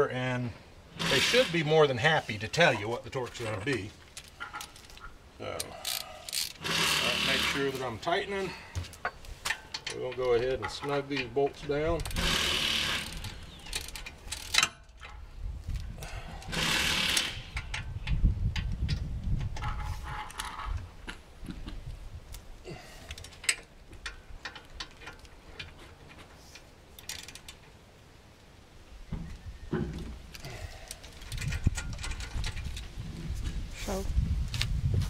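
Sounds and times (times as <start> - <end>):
hand ratchet clicking: 12.0 - 14.7, 16.5 - 17.8.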